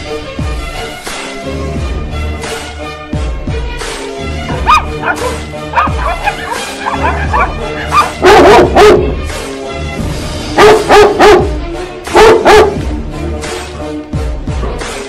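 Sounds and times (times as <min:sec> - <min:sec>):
background music: 0:00.0 - 0:15.0
dog barking: 0:04.5 - 0:09.2, 0:10.6 - 0:11.5, 0:12.1 - 0:12.8.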